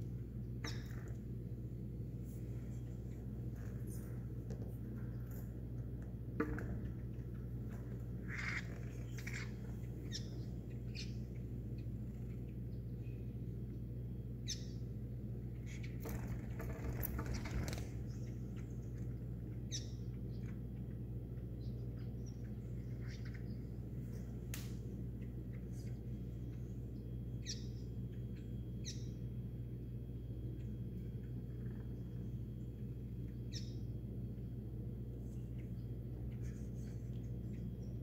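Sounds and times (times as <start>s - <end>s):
low steady hum: 0.0s - 38.0s
songbird chirping: 0.0s - 38.0s
noisy rustle: 15.7s - 19.2s.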